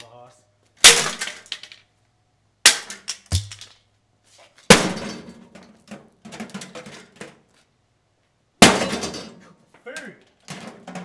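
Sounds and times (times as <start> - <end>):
broken glass and plastic rattling: 8.6 - 9.4.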